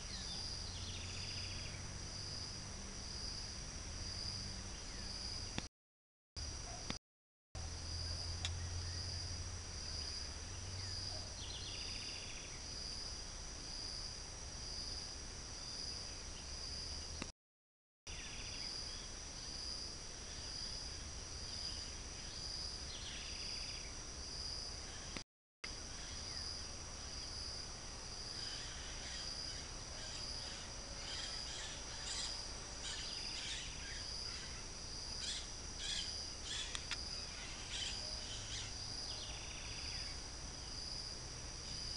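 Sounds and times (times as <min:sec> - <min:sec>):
insect chorus: 0:00.0 - 0:05.7, 0:06.4 - 0:07.0, 0:07.6 - 0:17.3, 0:18.1 - 0:41.9.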